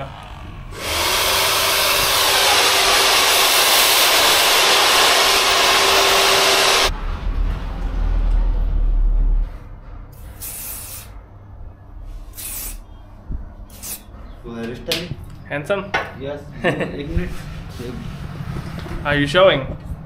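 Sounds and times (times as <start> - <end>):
hair dryer blowing: 0.7 - 6.9
low rumble: 6.9 - 10.3.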